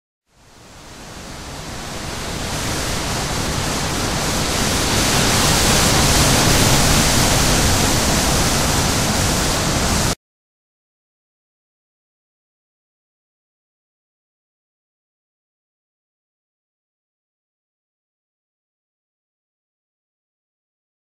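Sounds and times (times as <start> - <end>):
rushing noise hiss: 0.4 - 10.2.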